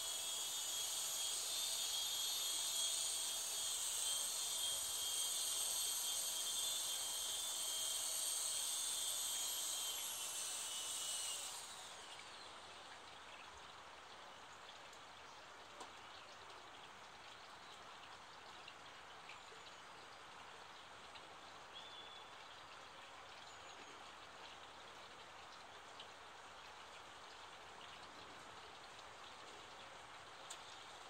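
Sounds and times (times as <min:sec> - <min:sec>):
rc helicopter motor whine: 0:00.0 - 0:12.7
faint outdoor hiss: 0:10.7 - 0:31.0.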